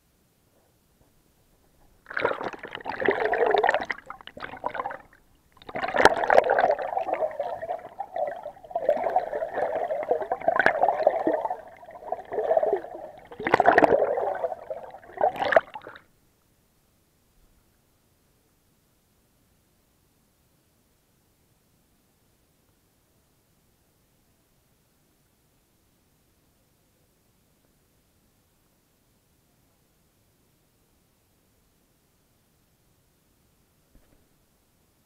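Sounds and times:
water gurgling and sloshing: 1.7 - 16.1
bubbling: 1.8 - 16.0.

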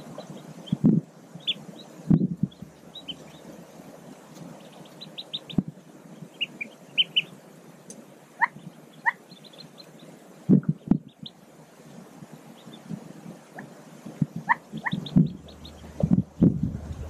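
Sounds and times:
ducklings peeping: 0.0 - 11.4, 12.4 - 17.0
low thump: 15.2 - 17.0.

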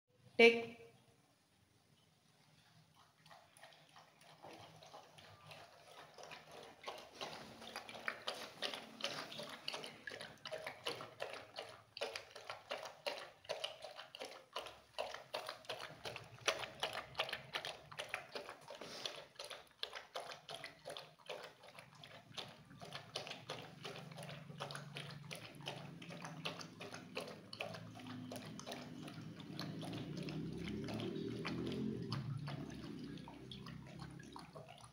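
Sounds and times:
dog lapping from metal bowl: 2.4 - 34.9.

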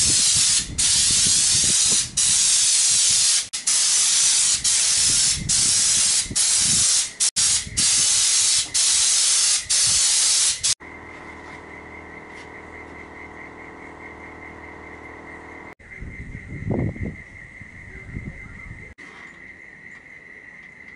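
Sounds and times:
spray gun hissing: 0.0 - 10.8.

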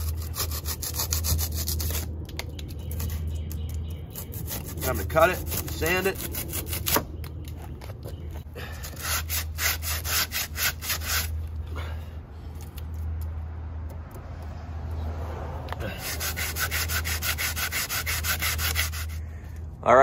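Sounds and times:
hand sanding foam: 9.0 - 11.3, 15.9 - 19.2.

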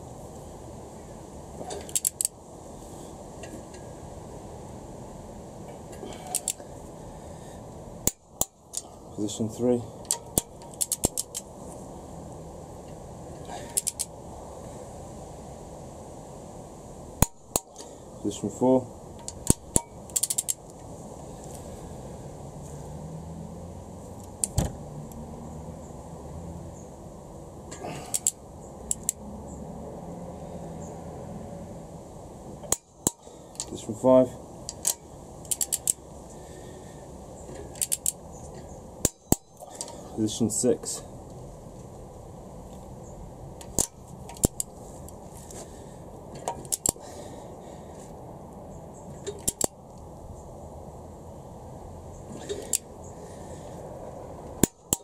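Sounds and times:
steady low hum: 0.0 - 55.0
torque wrench clicking: 1.8 - 2.3, 6.2 - 6.6, 10.0 - 11.5, 13.7 - 14.1, 19.2 - 20.6, 28.1 - 29.2, 34.7 - 36.0, 37.6 - 38.2, 43.6 - 44.7, 46.4 - 47.0, 49.2 - 49.8.

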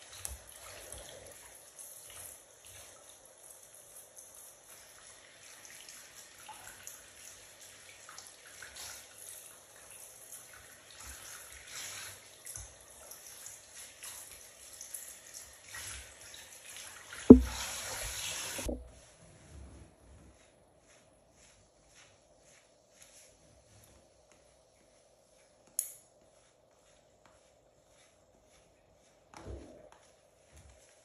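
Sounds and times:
shower water spraying: 0.0 - 18.8
sharp thump: 17.3 - 17.6.

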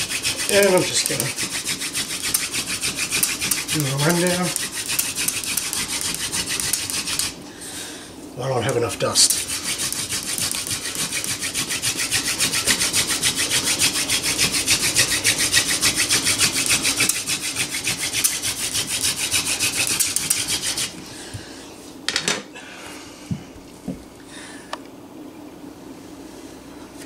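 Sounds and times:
wood-on-wood rubbing: 0.0 - 7.4, 9.3 - 21.0.

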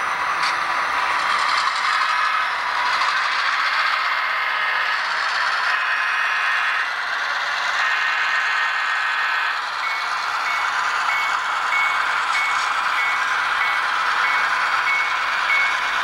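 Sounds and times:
model locomotives humming and whining: 0.0 - 16.0
bell ringing: 9.8 - 15.9.

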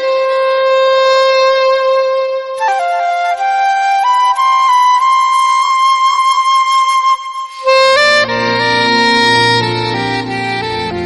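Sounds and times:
flute melody: 0.0 - 11.0
held drone note: 7.6 - 11.0.

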